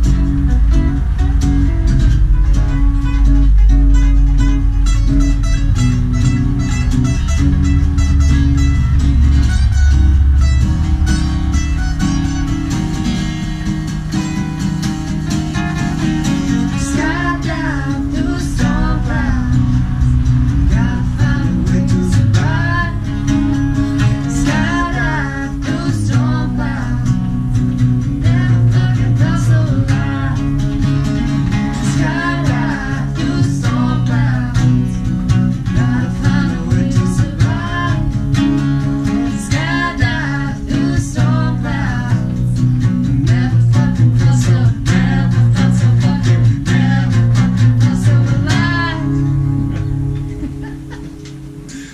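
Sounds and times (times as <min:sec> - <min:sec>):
acoustic guitars strumming: 0:00.0 - 0:51.9
person singing: 0:16.7 - 0:27.4, 0:28.0 - 0:31.0, 0:31.7 - 0:49.4.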